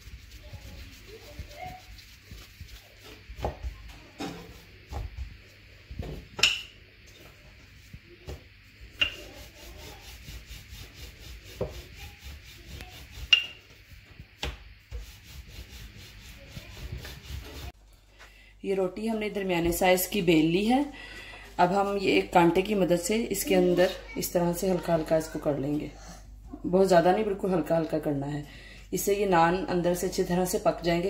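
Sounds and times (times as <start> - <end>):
rolling pin rolling dough: 0.0 - 6.4, 7.2 - 17.8.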